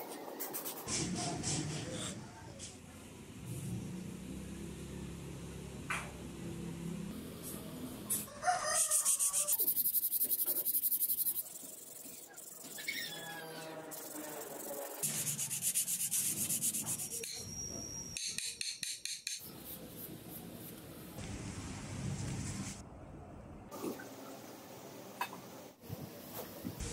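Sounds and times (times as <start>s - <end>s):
sandpaper rasping: 8.1s - 17.4s.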